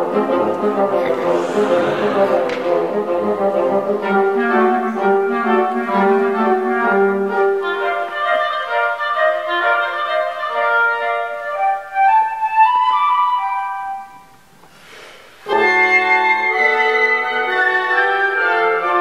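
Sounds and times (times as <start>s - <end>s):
woodwind quintet playing: 0.0s - 12.3s
bassoon low notes: 0.4s - 7.4s.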